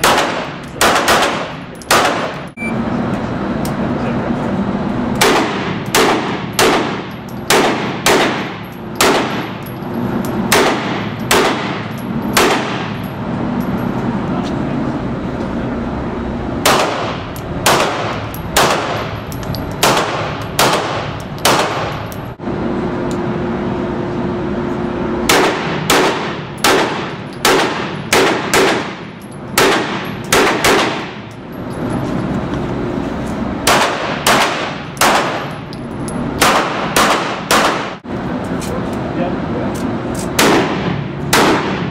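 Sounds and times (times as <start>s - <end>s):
handgun shots with echo: 0.0s - 2.4s, 5.2s - 9.5s, 10.5s - 13.0s, 16.6s - 19.0s, 19.8s - 22.0s, 25.3s - 29.0s, 29.6s - 31.2s, 33.6s - 35.5s, 36.4s - 38.0s, 40.4s - 41.9s.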